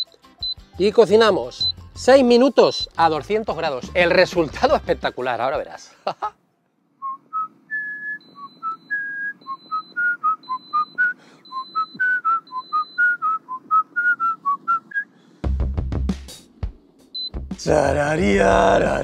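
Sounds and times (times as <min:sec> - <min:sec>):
man whistling a lively tune: 0:07.0 - 0:15.2.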